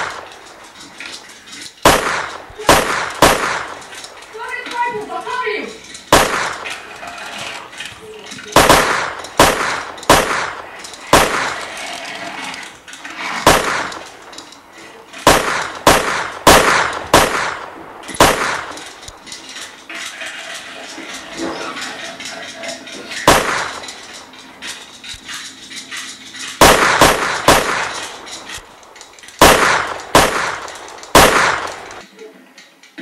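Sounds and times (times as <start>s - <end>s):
toy gun shots: 1.8s - 3.8s, 6.1s - 6.7s, 8.5s - 11.8s, 13.4s - 14.1s, 15.2s - 18.9s, 23.2s - 23.8s, 26.6s - 28.2s, 29.4s - 32.0s.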